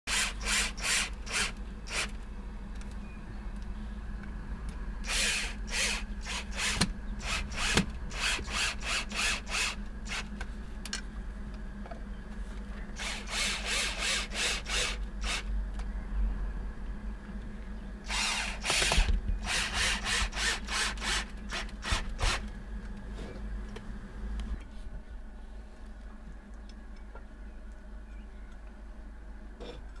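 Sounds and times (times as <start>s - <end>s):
cordless drill bursts: 0.1s - 2.1s, 5.0s - 10.3s, 13.0s - 15.5s, 18.1s - 22.4s.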